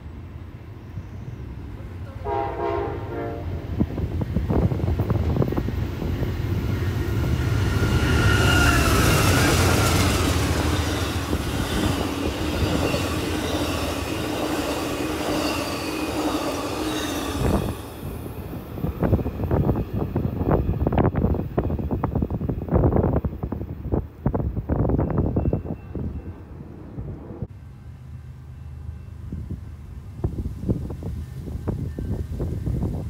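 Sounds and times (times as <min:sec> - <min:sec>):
train wheels rumbling on rail: 0:00.0 - 0:33.0
wind buffeting microphone: 0:03.5 - 0:15.4, 0:17.2 - 0:27.5, 0:29.2 - 0:33.0
train wheels squealing: 0:07.4 - 0:18.3, 0:25.0 - 0:26.5.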